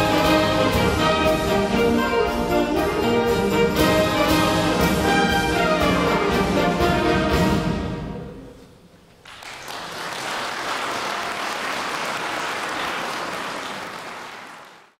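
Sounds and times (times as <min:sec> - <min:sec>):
brass band chord: 0:00.0 - 0:08.4
audience applause: 0:09.2 - 0:15.0.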